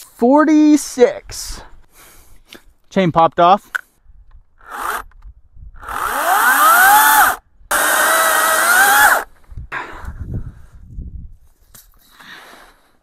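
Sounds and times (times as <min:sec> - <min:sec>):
chainsaw revving: 0:04.6 - 0:05.0, 0:05.8 - 0:09.3.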